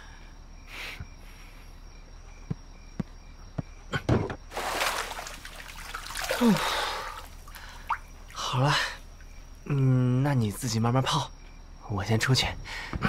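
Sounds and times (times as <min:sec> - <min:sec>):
water splashing in bath: 0:04.5 - 0:08.5.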